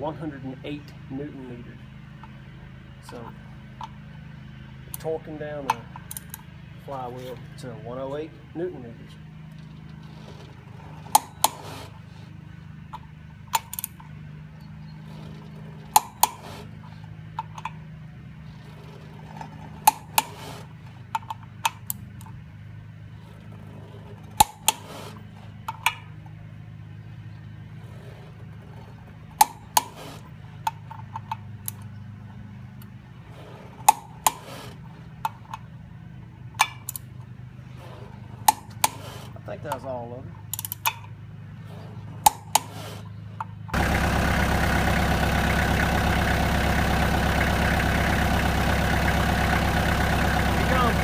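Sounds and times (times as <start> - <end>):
steady low hum: 0.0 - 51.0
torque wrench clicks: 40.5 - 41.1.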